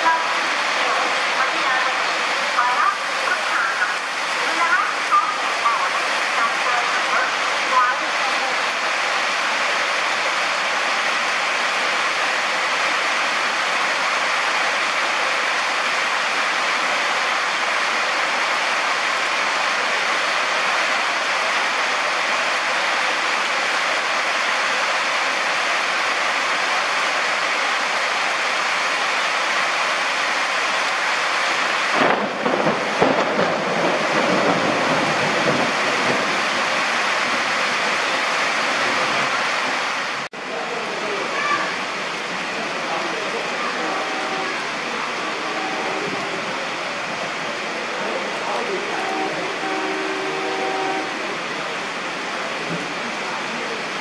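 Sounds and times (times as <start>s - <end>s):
heavy rain pouring: 0.0s - 54.0s
thunder rumbling: 31.6s - 39.9s.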